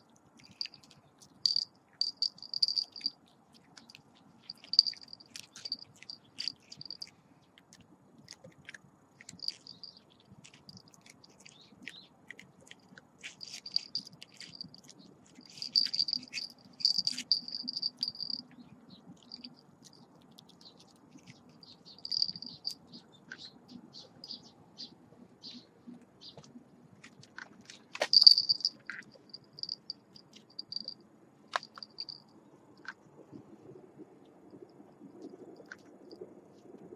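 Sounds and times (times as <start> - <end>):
cricket chirping: 0.4 - 3.2, 3.8 - 7.1, 9.3 - 11.4, 13.2 - 20.0, 21.2 - 24.5, 28.0 - 33.0.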